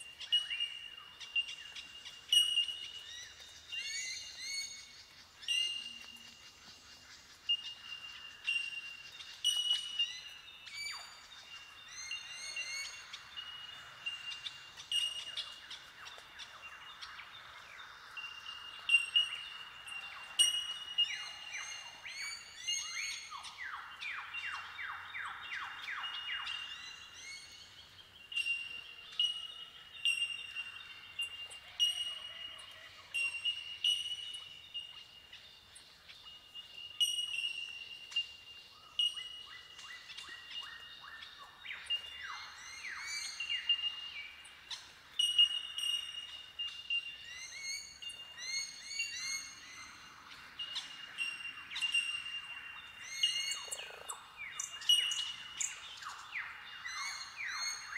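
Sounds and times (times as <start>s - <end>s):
bell-like bird calls: 20.3s - 21.1s.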